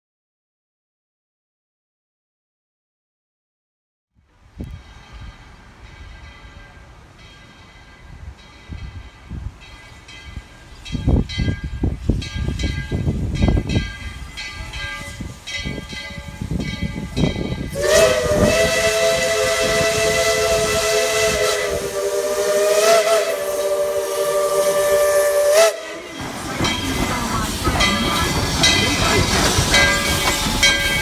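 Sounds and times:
puffs of steam: 4.5 - 9.9, 10.5 - 31.0
steam locomotive whistle: 17.6 - 26.3.

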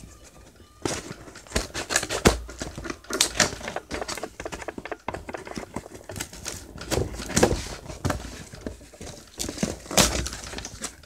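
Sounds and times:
cardboard package crinkling and rustling: 0.0 - 11.0.

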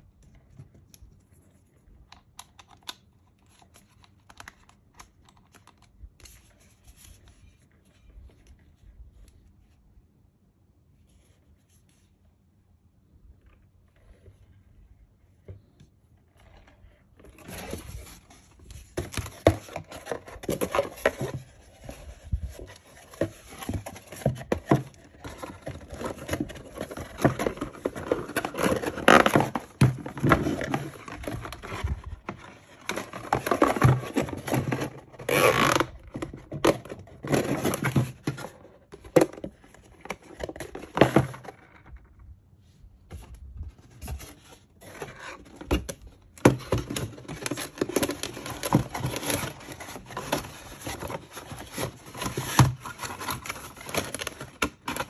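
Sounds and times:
plastic scraping on cardboard: 16.4 - 41.8, 43.9 - 55.0.

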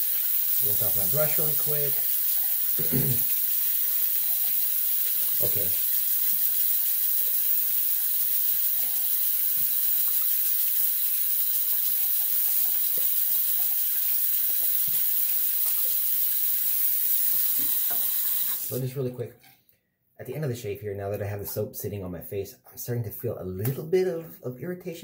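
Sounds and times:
tap running into sink: 2.7 - 3.4, 17.3 - 18.7.

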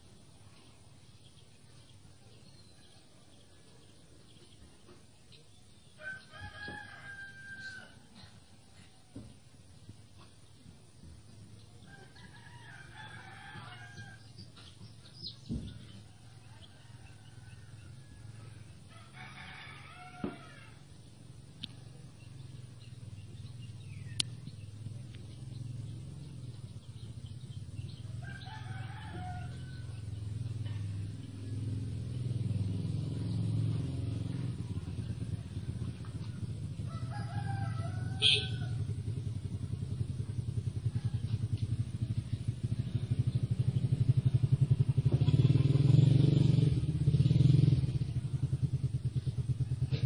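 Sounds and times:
rooster crowing: 6.0 - 8.3, 11.8 - 14.4, 16.0 - 20.9, 28.0 - 30.2, 35.1 - 39.0
low motor hum: 19.7 - 50.0.

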